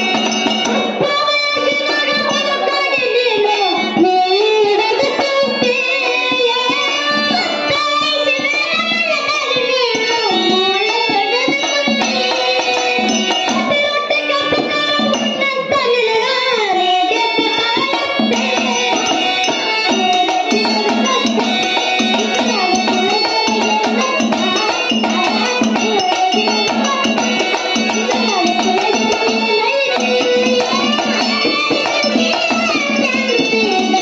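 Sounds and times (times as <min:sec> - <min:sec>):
children singing through a microphone: 0:00.0 - 0:34.0
hand drum beat: 0:17.7 - 0:34.0.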